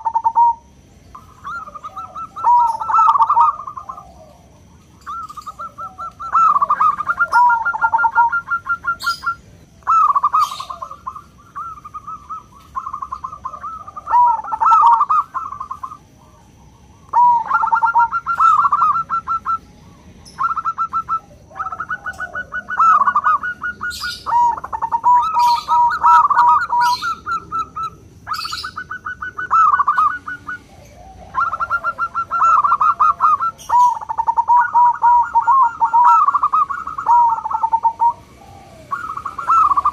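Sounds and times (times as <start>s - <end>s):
thin high chirps: 0.0s - 16.0s
dove cooing trills: 0.0s - 39.9s.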